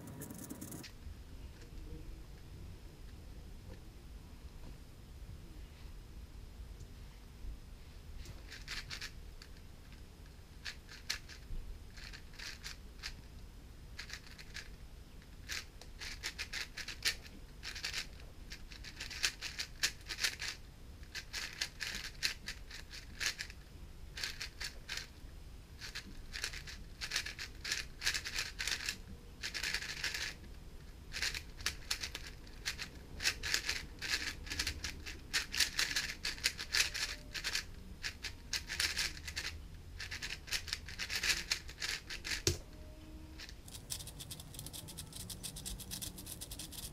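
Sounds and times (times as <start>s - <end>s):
speedcube plastic clicking: 8.5s - 9.6s, 10.6s - 13.2s, 14.0s - 14.7s, 15.5s - 23.6s, 24.2s - 25.1s, 25.8s - 30.4s, 31.1s - 42.6s.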